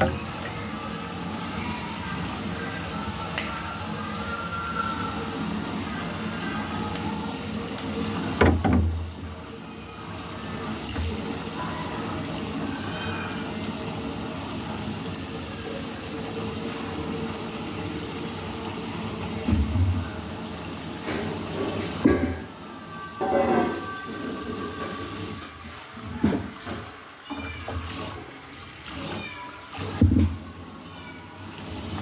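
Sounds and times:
water sloshing in a sink: 0.0s - 22.6s, 23.2s - 32.0s.

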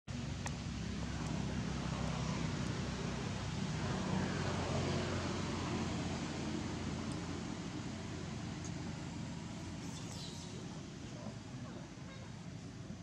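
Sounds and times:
low motor hum: 0.1s - 13.0s
steady hiss: 0.1s - 13.0s.

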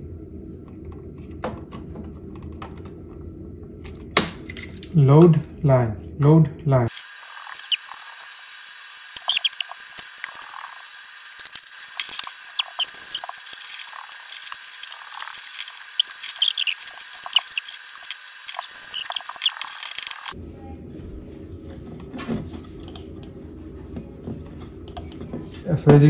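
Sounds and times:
wire connectors squeaking and clicking: 6.9s - 8.2s, 9.1s - 20.4s.

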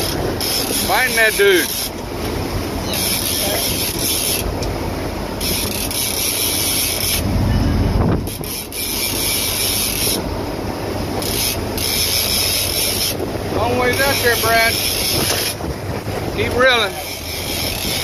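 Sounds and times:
fishing reel cranking: 0.0s - 2.0s, 2.9s - 4.4s, 5.4s - 7.2s, 8.3s - 10.2s, 11.2s - 13.2s, 13.9s - 15.6s, 16.8s - 18.0s
boat engine and wake rumbling: 0.0s - 18.0s.

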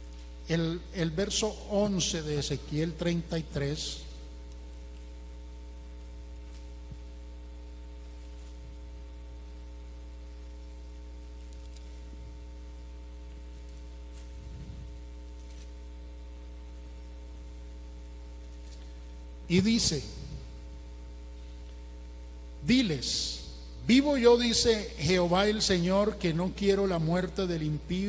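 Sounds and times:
electrical mains hum: 0.0s - 28.0s.

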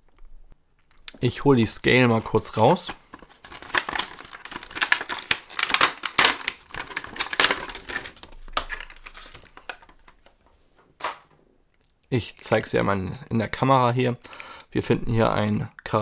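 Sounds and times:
plastic packaging crackling: 1.9s - 10.4s.

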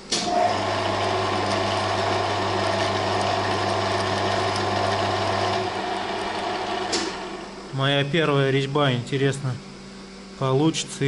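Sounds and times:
lathe motor humming: 0.2s - 8.7s.

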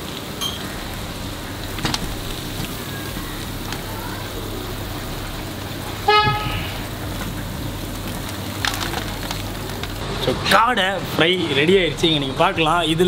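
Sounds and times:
background hum: 0.4s - 10.4s
vehicle horn toot: 6.0s - 6.9s.

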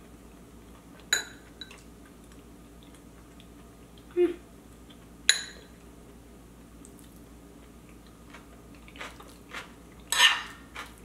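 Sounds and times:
quiet chewing: 0.0s - 5.1s, 6.8s - 10.1s.

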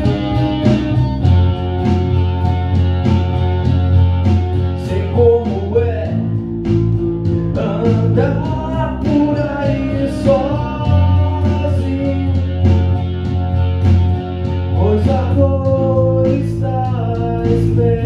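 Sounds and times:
man singing: 0.0s - 0.8s, 4.6s - 6.4s, 7.3s - 13.1s, 14.6s - 18.0s
deep sustained bass notes: 0.0s - 18.0s
electric guitar: 0.0s - 18.0s.

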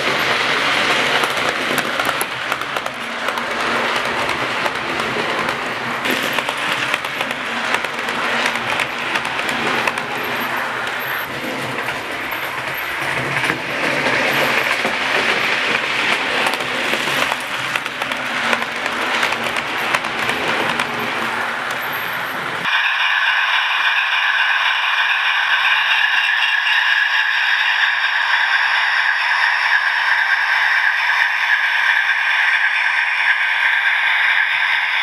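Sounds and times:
model train wheels clattering: 0.0s - 22.7s.

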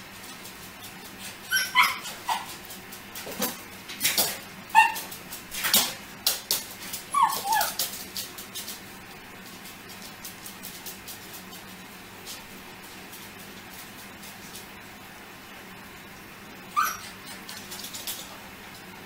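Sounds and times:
paws clicking on tiled floor: 0.0s - 14.9s, 16.8s - 19.0s
dog yipping and whining: 1.4s - 2.6s, 4.7s - 5.1s, 7.1s - 7.8s, 16.7s - 17.6s.

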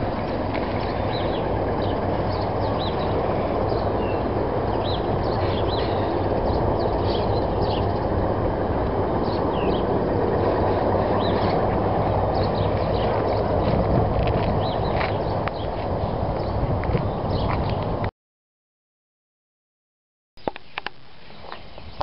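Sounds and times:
steady low rumble: 0.0s - 18.1s
small birds chirping: 0.2s - 8.3s, 9.0s - 18.0s.

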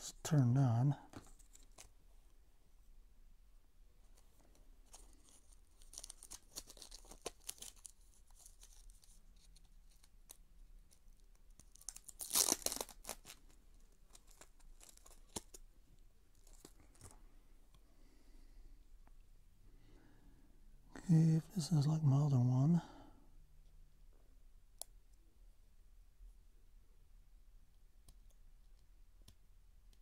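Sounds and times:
plastic packaging crinkling and tearing: 1.3s - 2.0s, 4.8s - 15.6s.

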